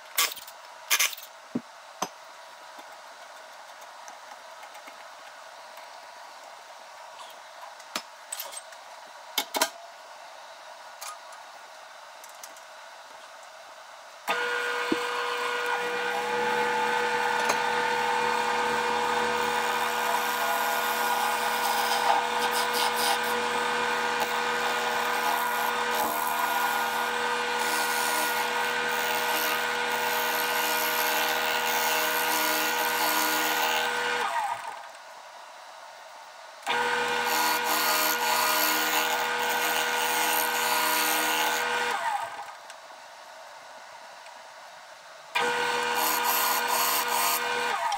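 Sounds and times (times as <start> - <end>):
gouge scraping spinning wood: 14.3 - 34.1
wood lathe motor whine: 14.3 - 34.8, 36.7 - 42.5, 45.4 - 47.9.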